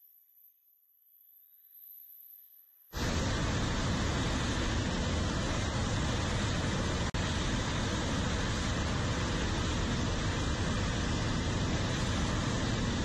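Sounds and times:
loud jet engine noise: 0:02.9 - 0:13.0.

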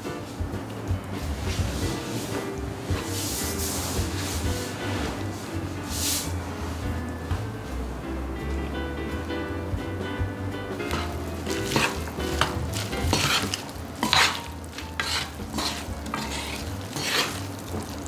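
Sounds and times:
stirring food in a pan: 0:10.8 - 0:18.0.

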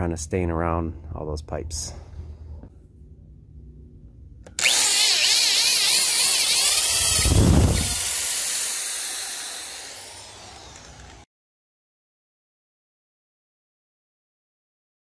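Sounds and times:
electric drill boring into wood: 0:04.5 - 0:11.3.

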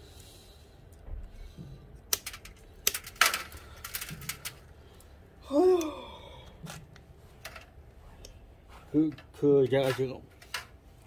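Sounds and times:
scissors cutting wires: 0:02.0 - 0:03.2
person speaking: 0:08.9 - 0:10.4.

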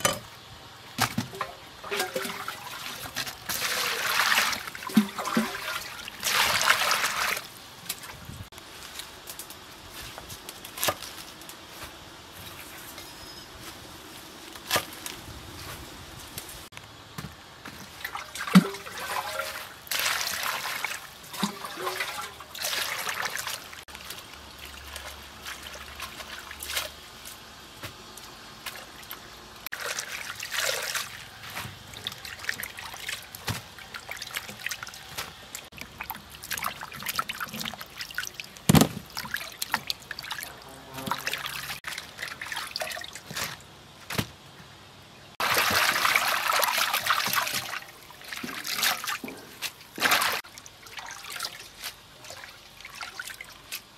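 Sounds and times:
water splashing in a bowl: 0:01.0 - 0:08.3, 0:17.8 - 0:27.3, 0:28.6 - 0:43.7, 0:45.4 - 0:53.9
swishing water: 0:01.3 - 0:08.4, 0:17.8 - 0:27.2, 0:28.7 - 0:43.6, 0:45.4 - 0:53.9.

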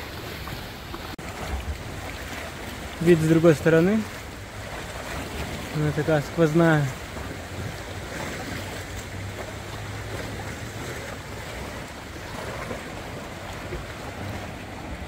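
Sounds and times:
water lapping against rocks: 0:00.0 - 0:15.0.

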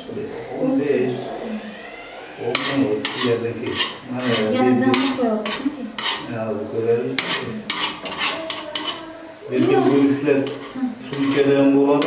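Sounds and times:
metal skimmer scraping a pot: 0:02.5 - 0:06.4, 0:07.2 - 0:09.0, 0:09.9 - 0:12.0.

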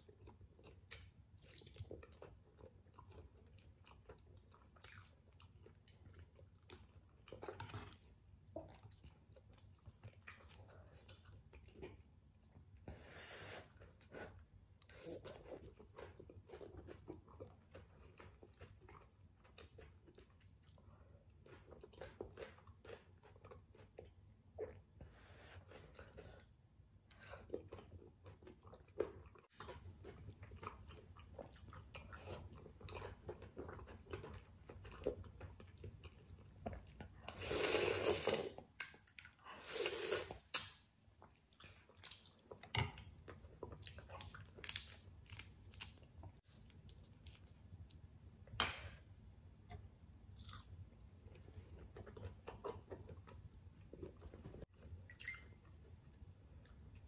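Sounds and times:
person chewing with wet smacks: 0:00.0 - 0:12.9, 0:13.6 - 0:48.6, 0:49.6 - 0:57.0
noodle slurps: 0:39.6 - 0:40.5.

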